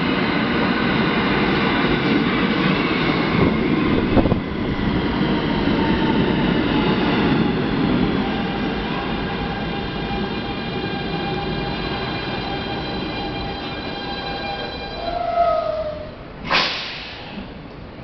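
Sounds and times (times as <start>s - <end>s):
subway train rumble: 0.0s - 18.0s
brake air hiss: 16.4s - 17.5s.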